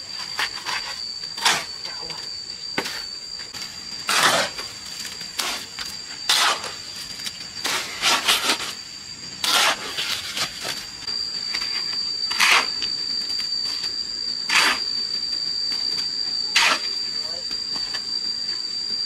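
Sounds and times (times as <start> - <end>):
high-pitched whine: 0.0 - 19.0
scraping strokes: 9.4 - 10.8.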